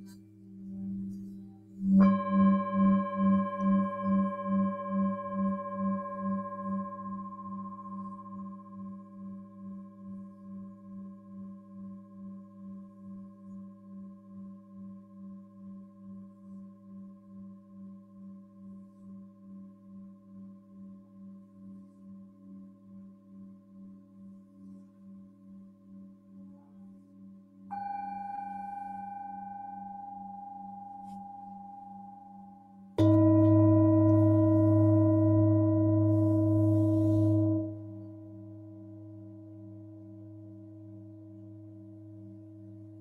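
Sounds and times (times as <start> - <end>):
singing bowl pulsing tone: 0.4 - 26.4, 27.7 - 43.0
singing bowl struck: 1.8 - 9.7, 27.7 - 40.9.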